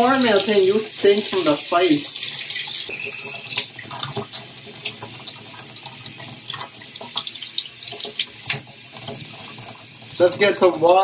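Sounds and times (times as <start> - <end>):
water dripping: 0.0 - 11.0.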